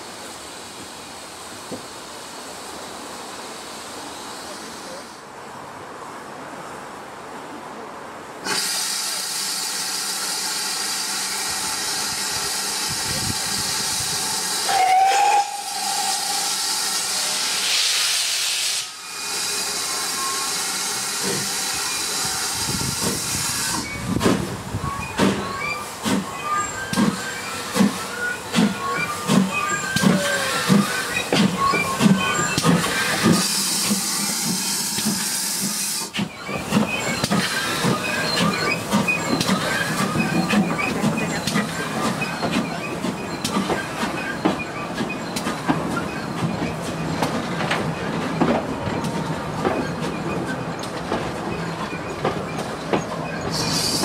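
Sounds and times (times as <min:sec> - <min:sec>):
steam locomotive hissing: 0:00.0 - 0:05.4, 0:08.4 - 0:54.0
steam whistle: 0:14.6 - 0:20.8.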